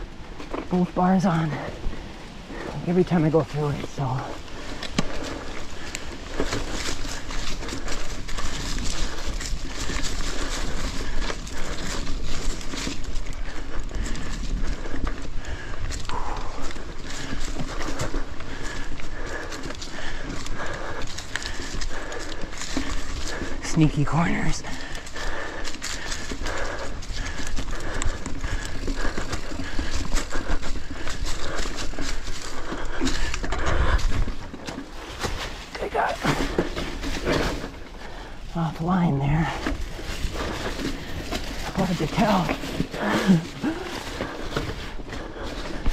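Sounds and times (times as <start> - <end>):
bike rattling: 0.0 - 45.9
bike tires clattering over rocks: 0.0 - 45.9
low wind rumble: 0.0 - 45.9.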